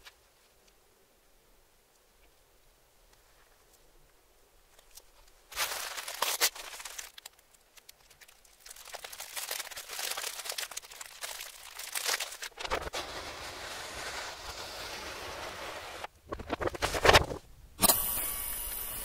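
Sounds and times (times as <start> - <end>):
aluminium foil crinkling: 4.7 - 13.0.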